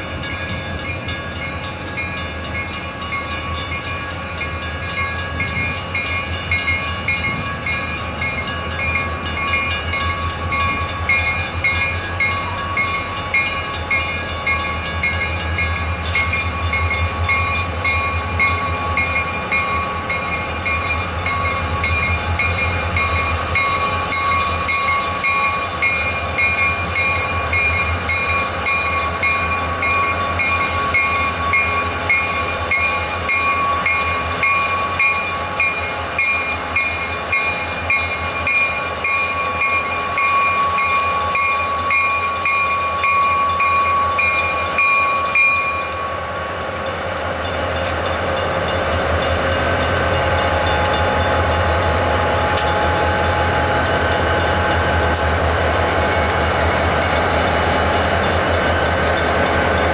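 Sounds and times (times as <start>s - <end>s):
crossing bell ringing: 0.0s - 59.9s
freight train rumbling past: 0.0s - 59.9s.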